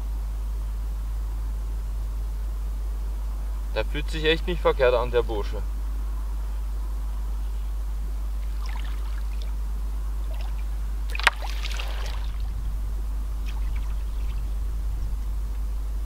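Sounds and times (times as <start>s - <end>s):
low rumble: 7.0s - 16.0s
net splashing through water: 8.4s - 9.5s, 10.3s - 12.5s, 13.4s - 14.4s
water sloshing and trickling: 8.4s - 9.6s, 10.2s - 12.8s, 13.4s - 14.6s.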